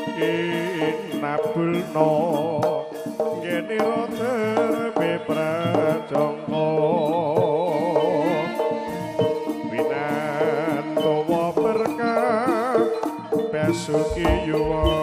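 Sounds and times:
kendang drums beating: 8.8 - 15.0
held gamelan tones: 10.4 - 15.0.

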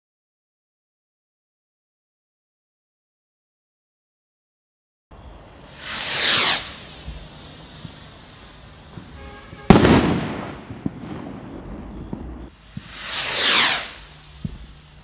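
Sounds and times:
firework rocket whoosh: 5.2 - 15.0
faint firework pops: 5.8 - 14.8
firework shell bang: 8.9 - 14.7.

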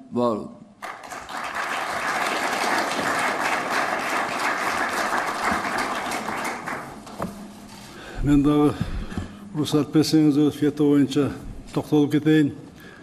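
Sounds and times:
audience applauding: 0.8 - 7.2.

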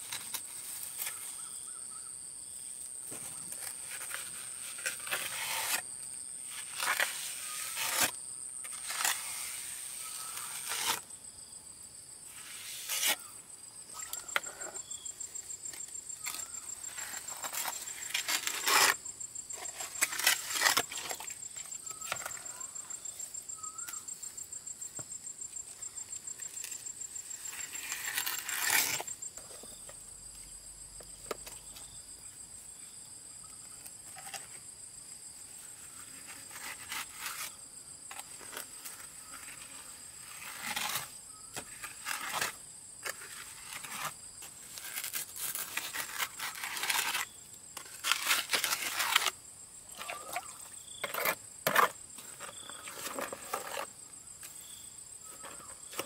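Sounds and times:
plastic float scraping wet cement: 3.1 - 11.0, 12.4 - 13.3, 14.0 - 14.9, 15.7 - 19.0, 19.6 - 23.0, 26.5 - 29.9, 35.8 - 54.0, 55.3 - 56.0.

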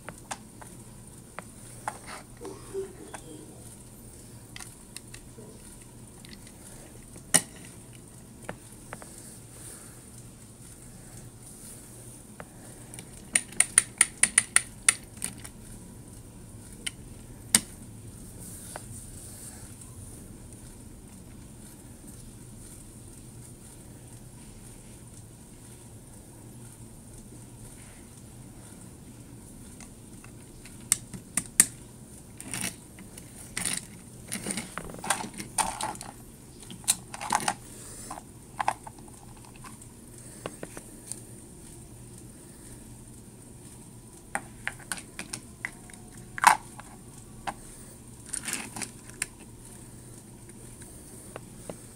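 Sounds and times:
plastic toy pieces clicking: 13.0 - 15.6, 32.4 - 39.7
plastic toy clicking: 13.3 - 15.6
toy scraping and rattling: 31.6 - 39.8, 48.2 - 49.5.

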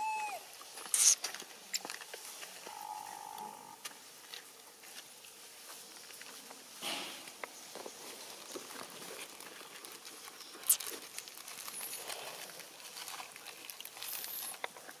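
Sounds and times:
monkeys rustling leaves: 7.6 - 15.0.

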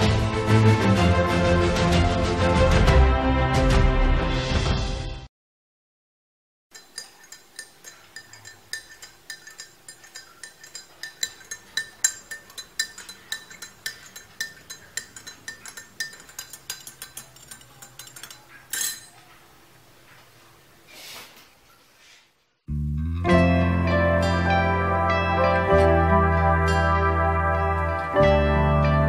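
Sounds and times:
stirrer clinking against glass: 6.7 - 19.3.

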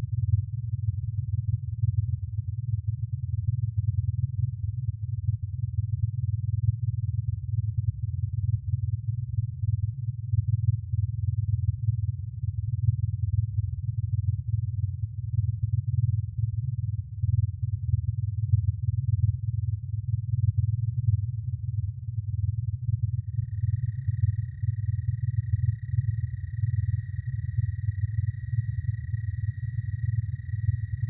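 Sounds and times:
low fluttering electronic drone: 22.6 - 31.0.

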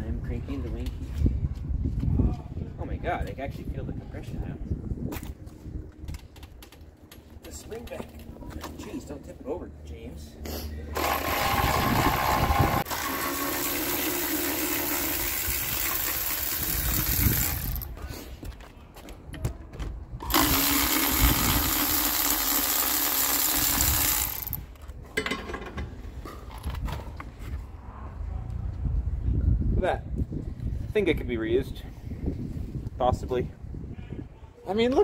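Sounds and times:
power driver running: 10.9 - 17.9, 20.2 - 24.6
metal clanks of handling: 25.1 - 26.4.

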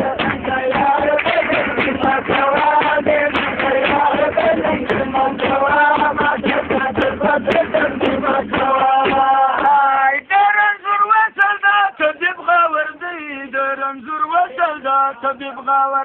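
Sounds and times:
drum beats: 0.0 - 10.5.

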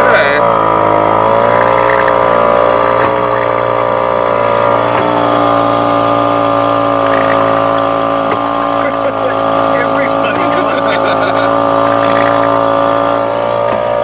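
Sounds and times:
outboard motor running: 0.0 - 14.0.

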